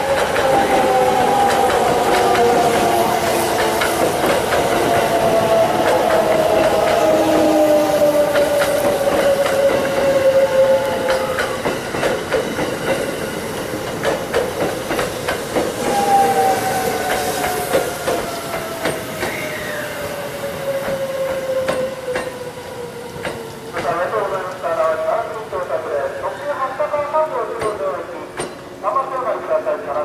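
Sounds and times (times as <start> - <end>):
train wheels clattering over rail joints: 0.0 - 7.6, 11.0 - 19.5, 27.5 - 28.8.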